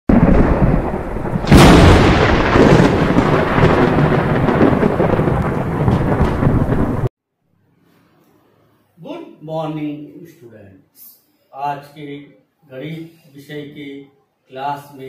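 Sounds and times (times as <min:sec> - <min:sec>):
thunder crack and rumble: 0:00.1 - 0:07.1.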